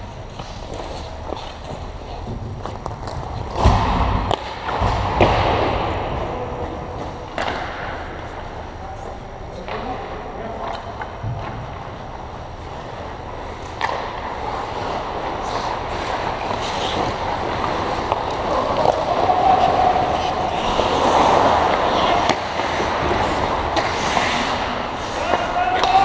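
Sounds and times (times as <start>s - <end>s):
skate blades scraping ice: 0.3s - 4.6s, 11.9s - 26.0s.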